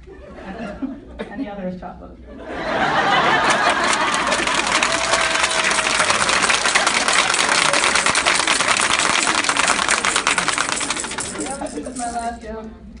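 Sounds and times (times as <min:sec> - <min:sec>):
audience applauding: 0:03.0 - 0:12.0.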